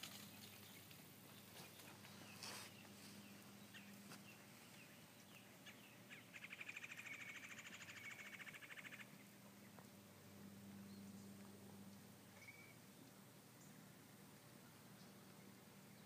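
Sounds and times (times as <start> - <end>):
faint bird chirps: 1.5 - 9.7, 12.3 - 13.8
rapid bird trill: 5.6 - 9.2, 12.3 - 12.8.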